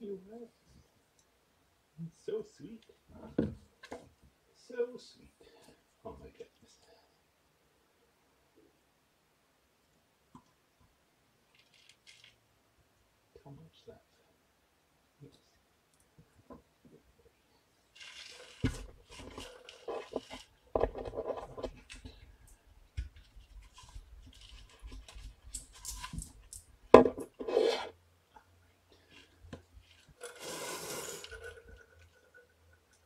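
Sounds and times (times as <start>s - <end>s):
rubbing and rustling handling noise: 11.5s - 12.4s, 17.8s - 28.1s, 29.0s - 33.0s
scraping noise: 27.4s - 28.0s.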